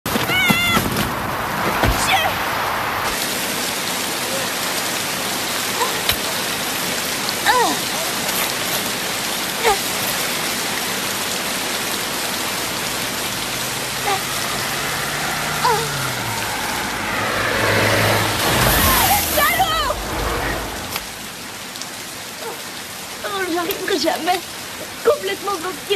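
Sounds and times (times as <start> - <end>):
heavy rain on road and car: 0.1 - 25.9
low car engine hum: 10.8 - 21.4
brief pitched sounds: 13.3 - 21.1.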